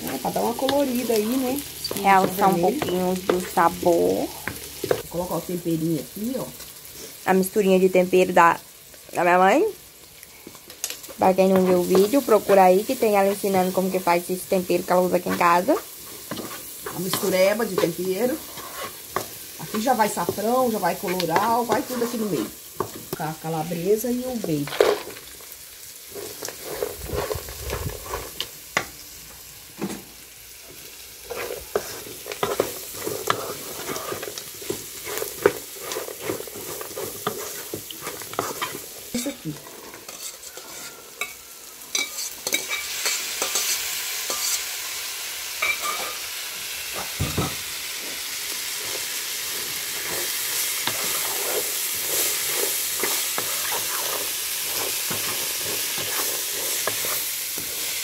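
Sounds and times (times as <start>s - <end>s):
food sizzling in pan: 0.0s - 58.0s
wooden spoon knocking on pan: 47.2s - 47.6s.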